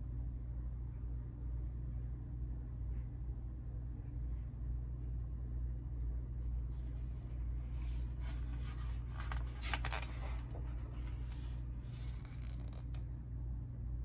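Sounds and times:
steady low hum: 0:00.0 - 0:14.0
book page rustling and turning: 0:06.6 - 0:13.2.

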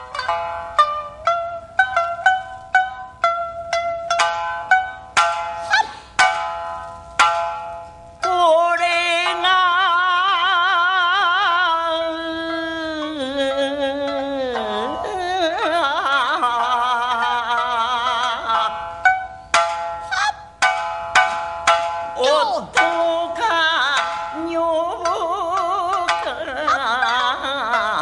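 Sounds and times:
shamisen plucking: 0:00.0 - 0:28.0
person singing with vibrato: 0:08.2 - 0:19.0, 0:22.1 - 0:28.0.

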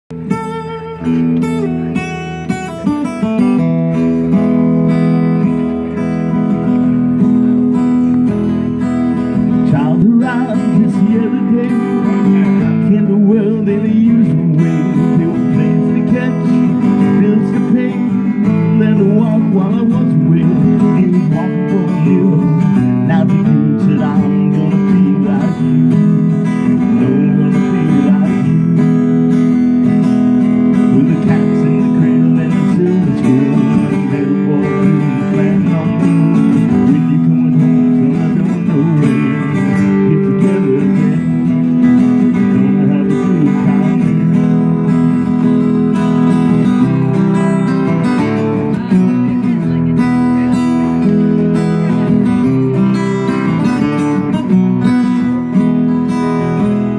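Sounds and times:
acoustic guitars strummed and picked: 0:00.1 - 0:56.9.

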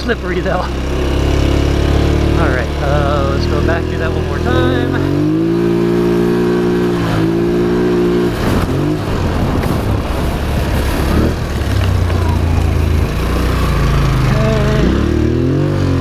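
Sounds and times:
atv engine running: 0:00.0 - 0:16.0.

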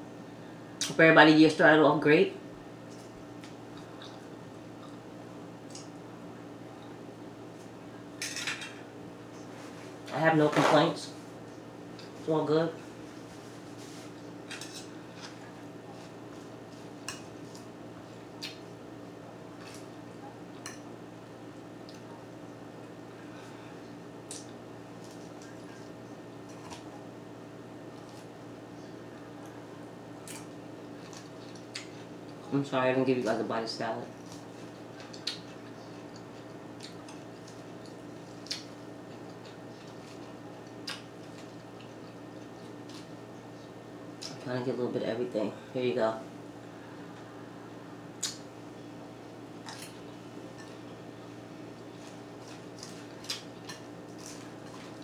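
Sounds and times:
low steady hum: 0:00.0 - 0:55.0
wet chewing: 0:51.8 - 0:55.0.

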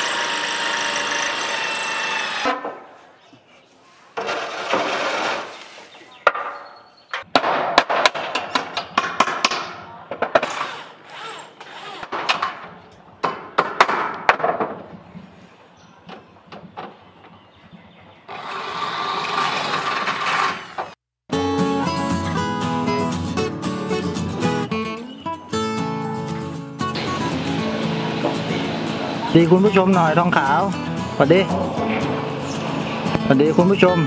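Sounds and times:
roof sheet scraping: 0:04.2 - 0:05.9.

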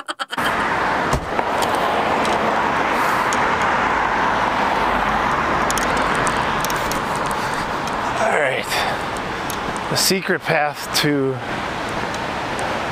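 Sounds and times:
steady rushing noise: 0:00.5 - 0:12.9.

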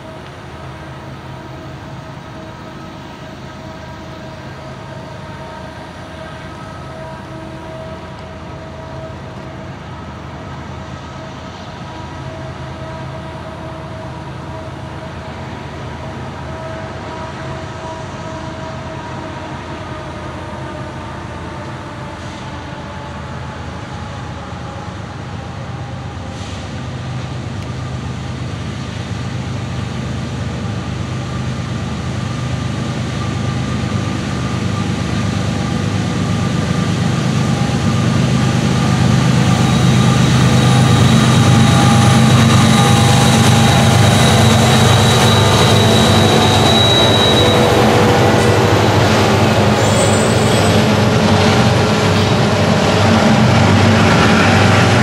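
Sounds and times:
diesel locomotive engine drone: 0:00.0 - 0:55.0
steady whine: 0:34.4 - 0:55.0.

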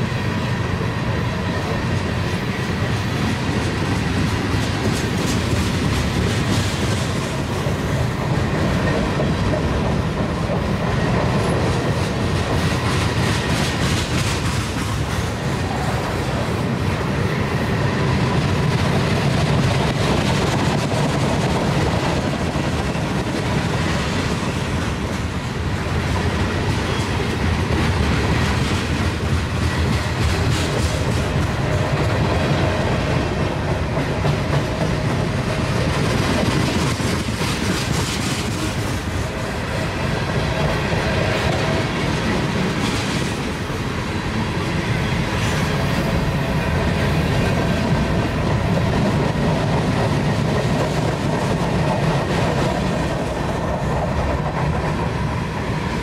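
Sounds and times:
steel wheels rumbling on rail: 0:00.0 - 0:56.0
wheels clacking over rail joints: 0:16.6 - 0:43.9.

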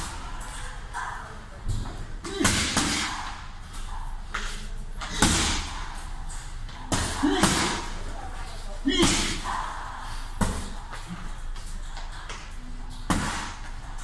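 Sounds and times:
punches smacking a heavy bag: 0:02.2 - 0:03.4, 0:05.0 - 0:05.8, 0:06.9 - 0:08.1, 0:08.9 - 0:09.5, 0:13.1 - 0:13.6.

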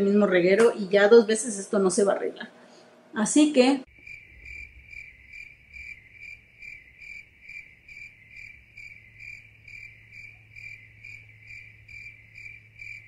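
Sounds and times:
faint low hum: 0:00.0 - 0:13.0
insect chirping: 0:03.9 - 0:13.0.

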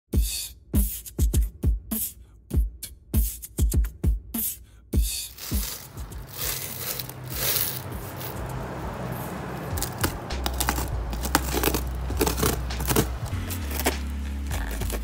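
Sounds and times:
packing tape tearing: 0:05.4 - 0:08.4, 0:09.8 - 0:15.0
tool scraping cardboard: 0:09.8 - 0:15.0.

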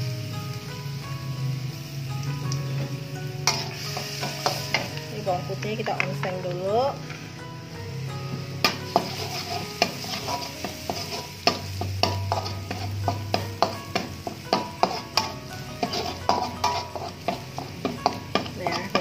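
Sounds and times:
garlic sizzling in oil: 0:00.0 - 0:19.0
metal spatula scraping a wok: 0:03.4 - 0:05.0, 0:08.6 - 0:19.0.

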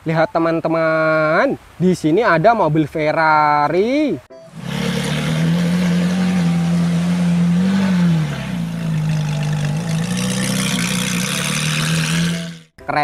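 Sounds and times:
car engine droning: 0:04.4 - 0:12.8.

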